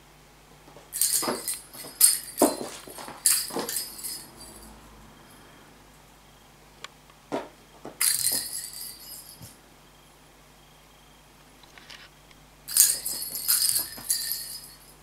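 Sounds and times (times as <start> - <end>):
toy balls jingling: 1.0 - 4.8, 8.0 - 9.6, 12.7 - 15.0
balls knocking on wooden floor: 7.3 - 8.6.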